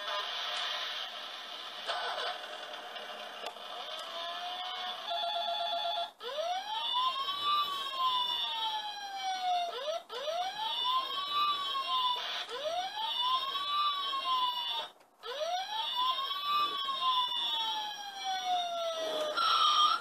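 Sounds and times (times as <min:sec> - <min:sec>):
toy siren wail: 0:03.8 - 0:20.0
toy electronic beeping: 0:19.0 - 0:20.0.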